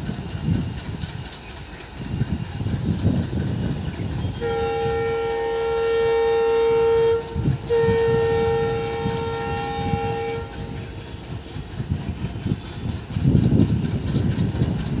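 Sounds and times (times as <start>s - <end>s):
locomotive engine chugging rumble: 0.0s - 15.0s
diesel locomotive horn blasts: 4.1s - 11.1s.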